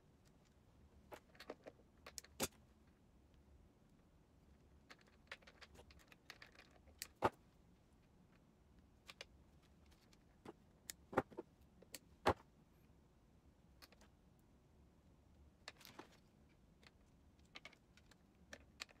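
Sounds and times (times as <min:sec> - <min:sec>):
plastic tubes clicking and knocking: 0:16.8 - 0:19.0.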